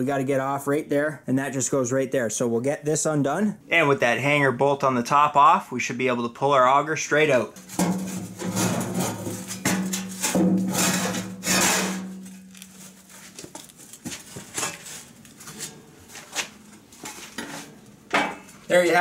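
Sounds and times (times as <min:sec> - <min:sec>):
metal clanking and scraping: 0:07.6 - 0:13.3, 0:14.3 - 0:15.8.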